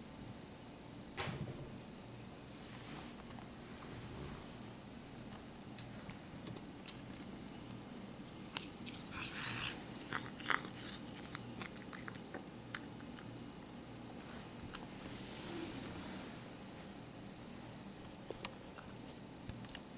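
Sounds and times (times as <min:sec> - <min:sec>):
cat chewing grass: 0:05.0 - 0:13.3.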